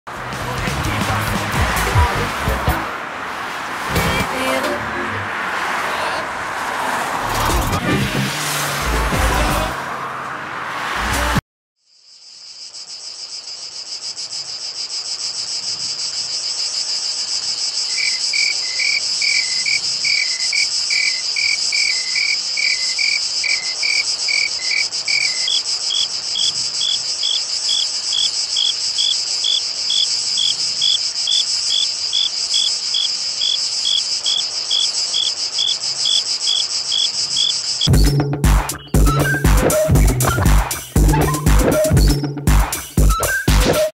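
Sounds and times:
cricket chirping: 11.8 - 37.9
higher-pitched cricket chirp: 11.8 - 37.9
crickets shrilling chorus: 11.9 - 37.9.

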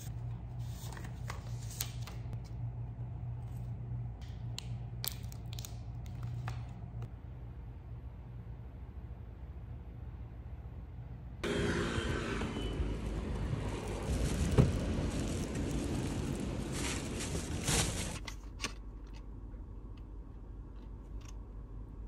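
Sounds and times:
snack packets clicking: 4.3 - 6.7
traffic noise: 7.0 - 18.2
plastic bag being handled: 13.5 - 18.3.

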